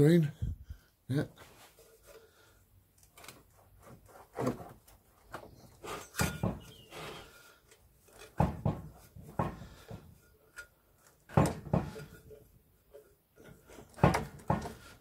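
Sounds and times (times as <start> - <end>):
metal drum clunking and scraping: 6.1 - 7.2, 11.2 - 12.4.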